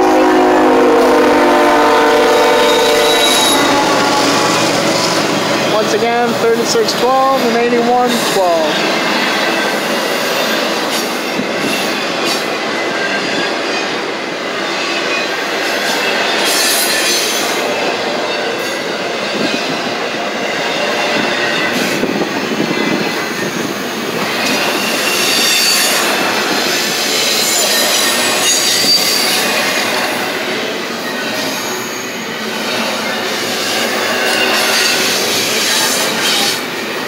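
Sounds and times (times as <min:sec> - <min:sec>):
steel wheels rumbling on rail: 0:00.0 - 0:37.0
high wheel squeal: 0:01.8 - 0:05.8, 0:24.4 - 0:30.2, 0:30.9 - 0:37.0.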